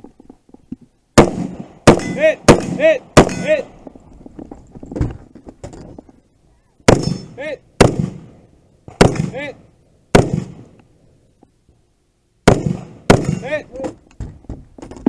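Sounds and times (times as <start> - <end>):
rifle shots: 1.2 - 3.7, 6.9 - 10.7, 12.4 - 13.6
steel target ringing: 1.9 - 3.6, 6.9 - 7.4.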